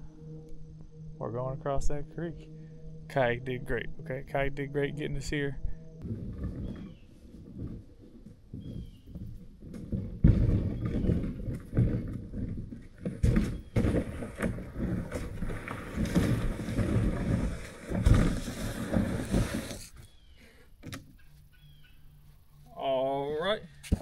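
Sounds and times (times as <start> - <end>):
plastic kayak scraping over dirt: 6.0 - 20.3.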